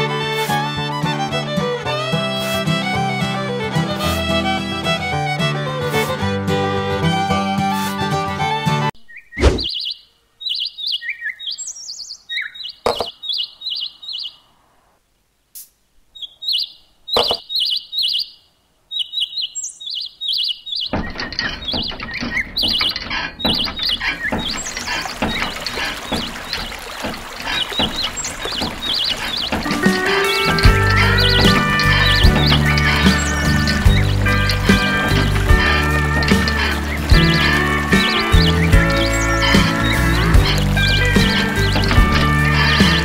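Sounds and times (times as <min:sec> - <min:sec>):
small bird chirping: 0:09.0 - 0:14.6, 0:16.1 - 0:27.0, 0:27.6 - 0:43.0
sharp knocks: 0:12.8 - 0:13.1, 0:17.2 - 0:17.5, 0:20.9 - 0:43.0
water splashing into pond: 0:20.9 - 0:43.0.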